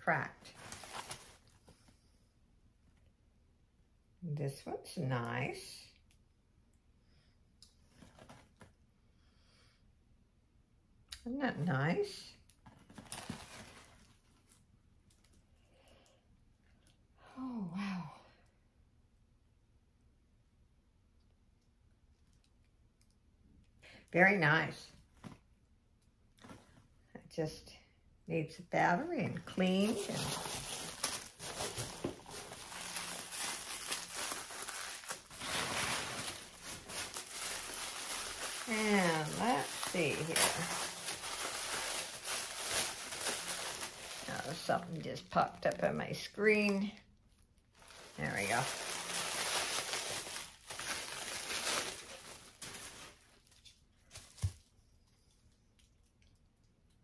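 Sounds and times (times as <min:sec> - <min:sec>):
packaging rustling and crinkling: 0:00.3 - 0:02.0, 0:07.9 - 0:08.8, 0:12.5 - 0:15.4, 0:29.4 - 0:55.5.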